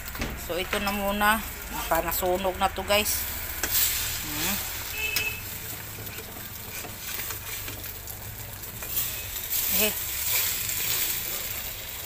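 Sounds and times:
omelette sizzling in frying pan: 0.0s - 12.0s
spatula scraping and clicking on pan: 3.6s - 4.0s, 5.0s - 8.0s, 8.7s - 11.6s.

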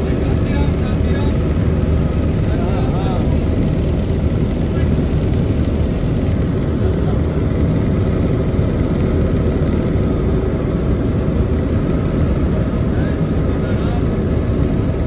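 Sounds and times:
helicopter engine and rotor noise: 0.0s - 15.0s.

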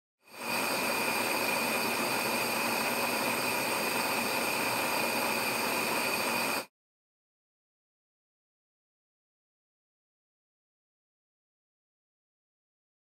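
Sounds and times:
gas flame hissing: 0.2s - 6.7s.

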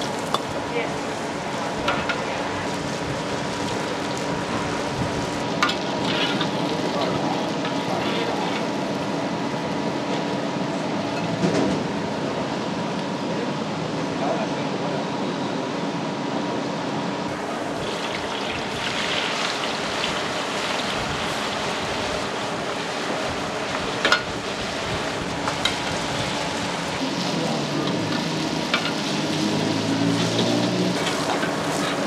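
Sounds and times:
noodles sizzling in oil: 0.0s - 9.2s, 17.3s - 32.0s.

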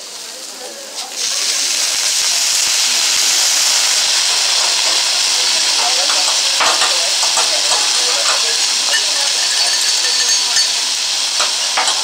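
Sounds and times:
liquid hissing on hot griddle: 0.0s - 12.0s.

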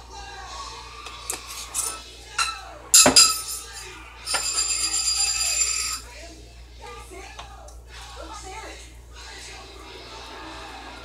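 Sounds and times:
bright jingling ring: 1.5s - 6.1s.

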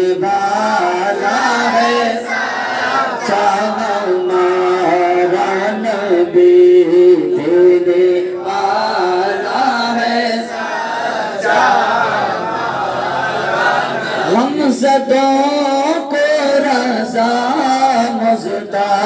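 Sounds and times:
man chanting into a microphone: 0.0s - 2.3s, 3.2s - 10.6s, 14.0s - 19.0s.

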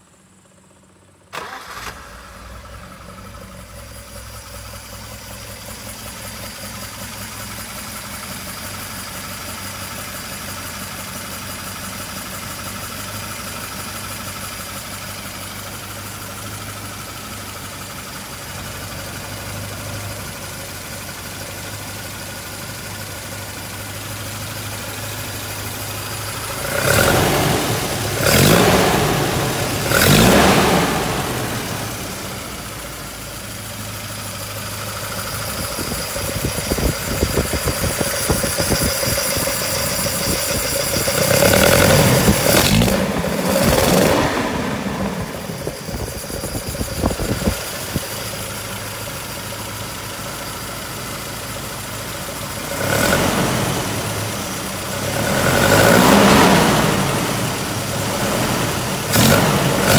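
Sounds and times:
engine starting and idling: 0.2s - 59.9s
engine revving: 25.8s - 32.9s, 35.0s - 48.5s, 52.4s - 59.9s.

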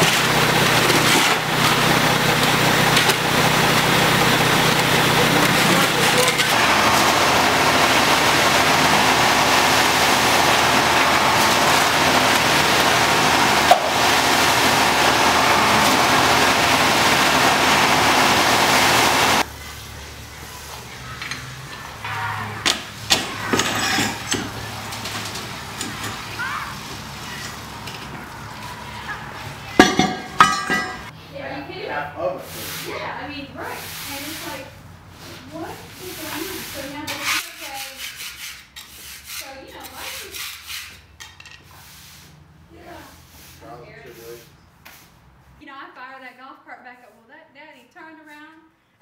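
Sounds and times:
wooden board scraping wet concrete: 0.0s - 9.1s, 10.0s - 14.3s, 35.2s - 45.1s
concrete mixer truck engine: 0.0s - 31.2s.

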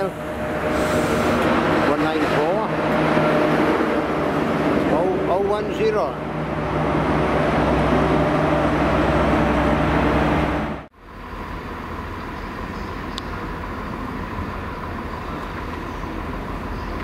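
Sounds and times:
diesel train engine running: 0.0s - 17.0s
distant rail yard rumble: 0.0s - 17.0s.

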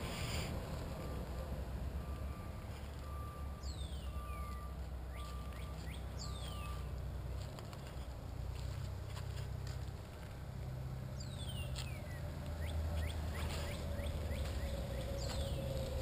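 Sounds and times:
faint electronic beep: 2.0s - 6.9s
downward sweeping bird calls: 3.6s - 6.9s, 11.2s - 16.0s.

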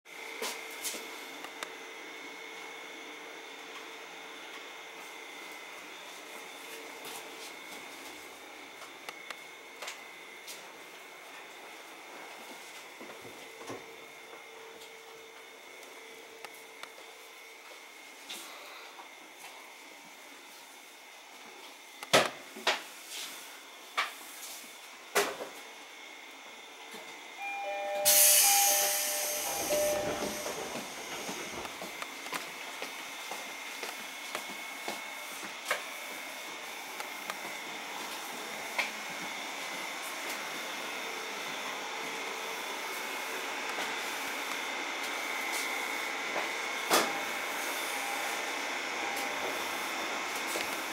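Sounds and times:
train car running noise: 26.9s - 50.9s
electronic chime: 27.4s - 30.8s
thin high steady tone: 27.4s - 31.3s
train compressed air hissing: 27.9s - 31.6s.

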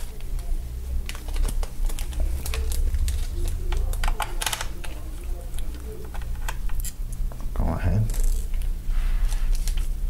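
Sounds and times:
hands clicking small laptop parts: 1.1s - 6.9s.

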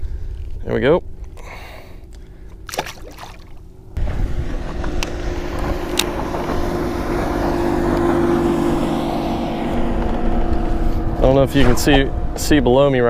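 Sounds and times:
outboard motor droning: 1.4s - 13.0s.

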